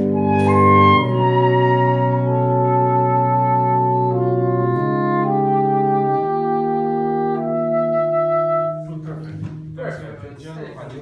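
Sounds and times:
saxophone quartet playing chords: 0.0 - 10.3.

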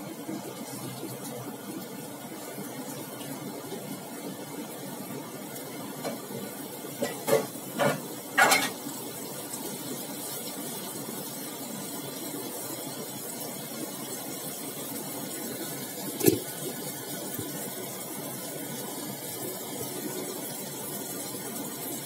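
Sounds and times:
food sizzling in a wok: 0.0 - 22.0
kitchen utensils clattering: 7.0 - 8.8, 16.2 - 16.5.

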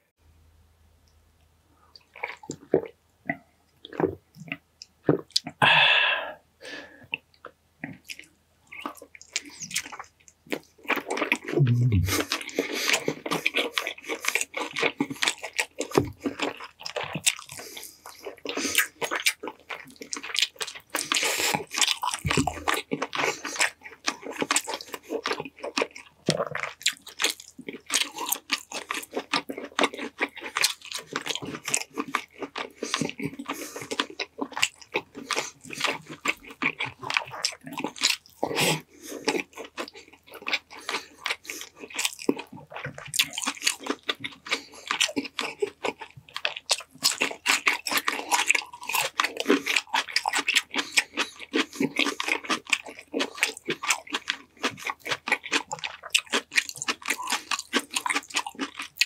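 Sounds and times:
close biting and chewing: 2.0 - 6.2, 7.0 - 59.0.

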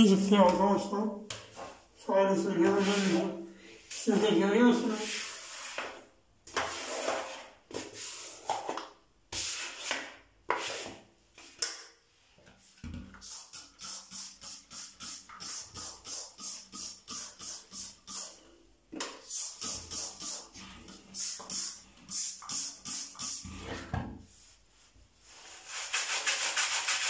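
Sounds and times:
spray bottle squirts: 13.2 - 18.4, 19.2 - 20.6.

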